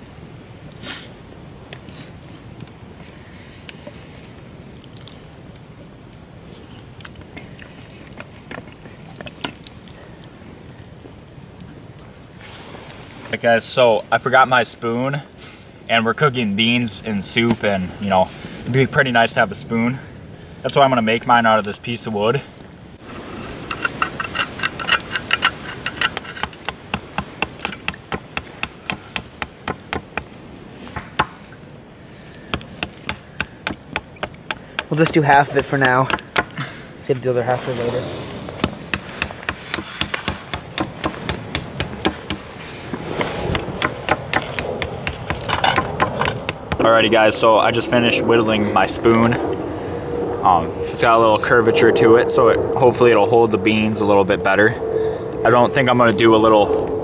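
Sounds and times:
steady low background noise: 0.0 - 57.0
utensil scraping metal can: 23.4 - 26.8.

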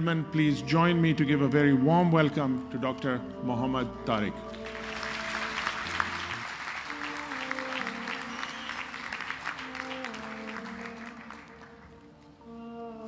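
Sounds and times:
soft background music: 0.0 - 13.0
audience applauding: 4.5 - 12.3.

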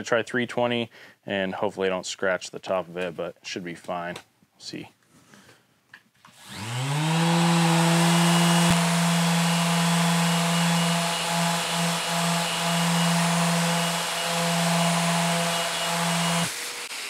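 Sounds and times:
orbital sander sanding metal: 6.4 - 17.0.

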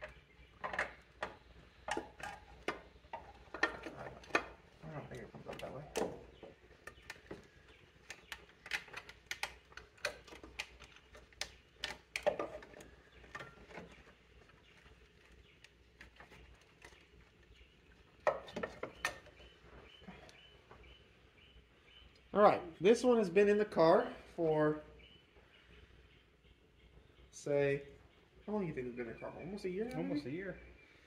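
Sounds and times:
clicks and taps of hoses: 0.0 - 17.5.

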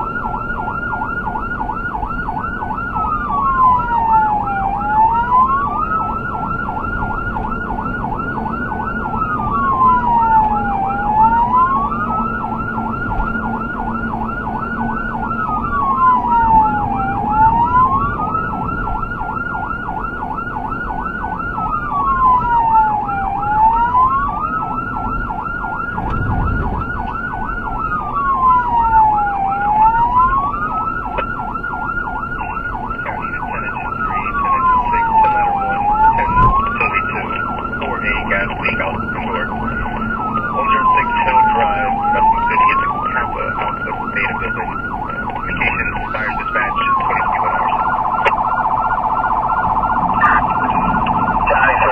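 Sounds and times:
emergency siren wailing: 0.0 - 51.9
vehicle rumble: 23.9 - 51.9.

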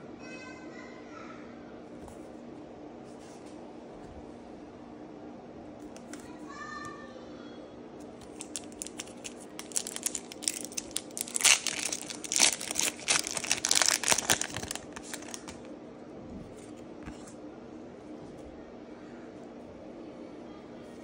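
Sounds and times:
foil wrapper tearing and crinkling: 8.2 - 15.7.

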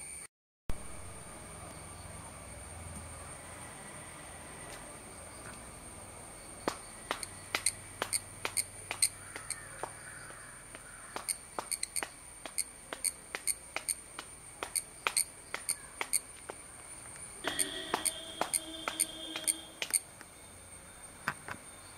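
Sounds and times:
cicada buzzing: 0.8 - 20.1
sharp clap-like clicks: 6.6 - 10.0, 10.7 - 16.6, 17.4 - 20.0.

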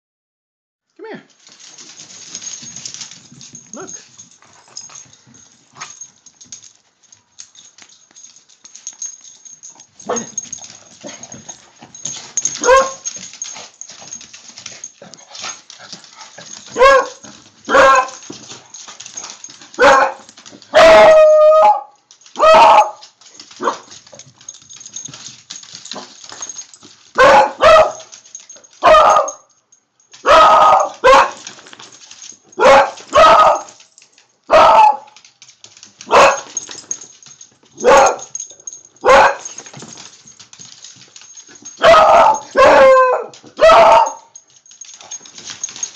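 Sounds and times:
dog baying: 9.7 - 14.1, 41.6 - 44.3
dogs barking: 12.0 - 13.1, 16.7 - 18.2, 19.7 - 21.8, 22.4 - 23.0, 27.2 - 28.2, 28.8 - 29.4, 30.2 - 31.4, 32.6 - 33.8, 34.5 - 35.2, 36.1 - 36.5, 37.8 - 38.4, 39.0 - 39.6, 41.7 - 44.3.

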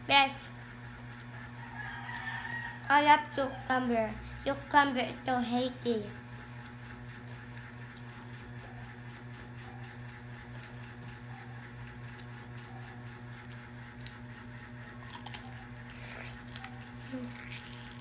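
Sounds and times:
low machine hum: 0.0 - 18.0
cucumber being bitten and chewed: 14.9 - 18.0.

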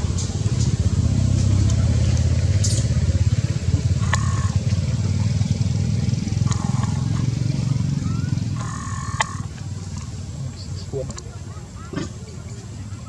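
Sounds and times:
small engine running: 0.0 - 10.2.

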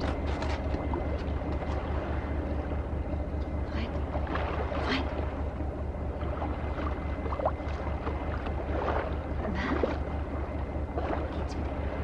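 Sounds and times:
boat engine droning: 0.0 - 12.0.

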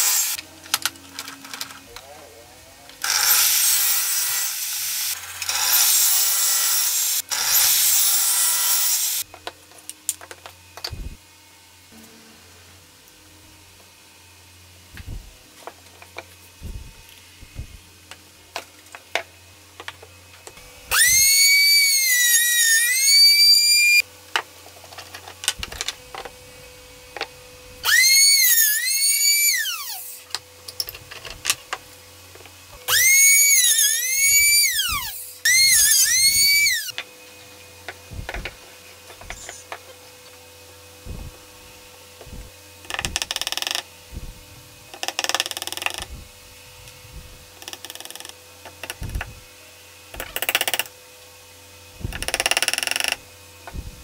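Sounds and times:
trim router whining: 2.9 - 9.5, 19.1 - 24.0, 25.4 - 50.9, 51.9 - 54.0.

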